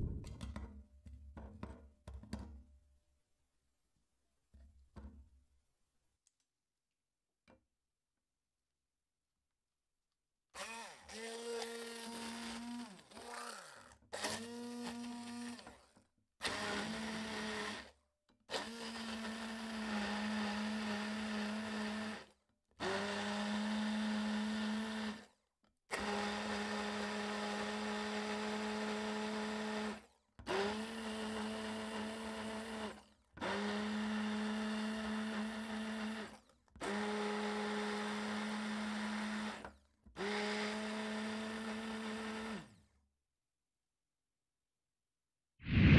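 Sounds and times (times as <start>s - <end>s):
stick blender whirring: 10.6s - 17.9s, 18.5s - 25.3s, 25.9s - 42.8s.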